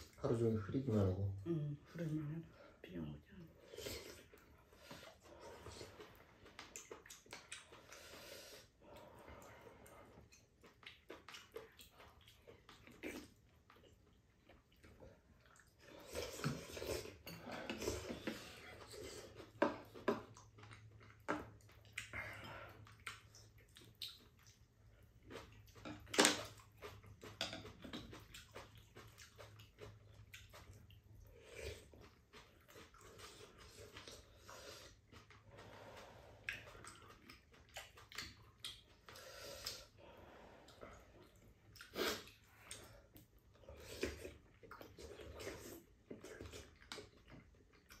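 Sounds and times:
chewing: 3.5 - 48.0
slurping broth: 15.6 - 20.9, 39.0 - 42.9.

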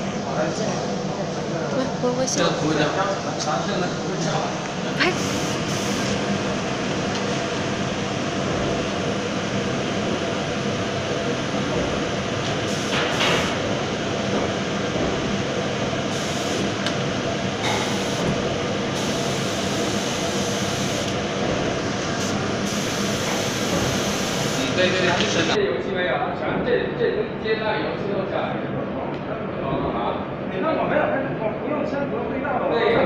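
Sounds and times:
spray booth air rushing: 5.2 - 6.2, 12.6 - 13.7, 16.0 - 16.8, 17.6 - 21.2, 21.8 - 25.0
spray gun hissing: 19.0 - 21.1, 22.1 - 24.7.

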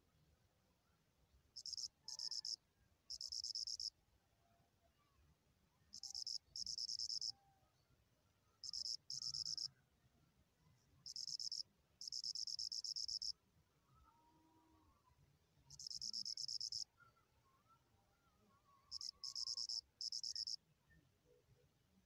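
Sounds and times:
cricket trilling: 1.6 - 3.9, 5.9 - 7.3, 8.6 - 9.7, 11.1 - 13.3, 15.7 - 16.9, 18.9 - 20.6.

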